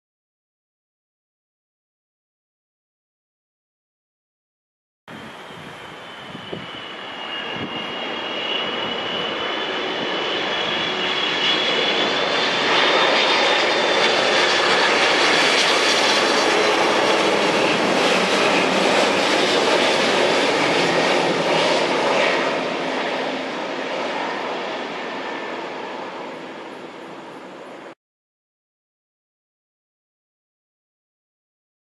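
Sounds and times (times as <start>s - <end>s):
high fan whine: 5.1s - 11.2s
airliner jet engine rush: 5.1s - 28.0s.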